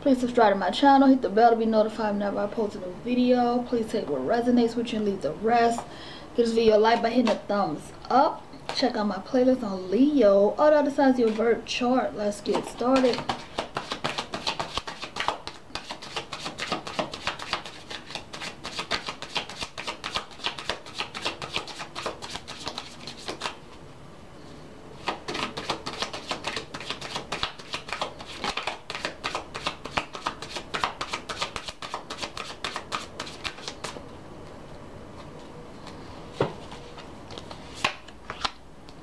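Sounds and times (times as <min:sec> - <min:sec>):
cards being shuffled: 0:11.2 - 0:11.5, 0:12.5 - 0:23.6, 0:25.0 - 0:34.0, 0:35.2 - 0:38.6.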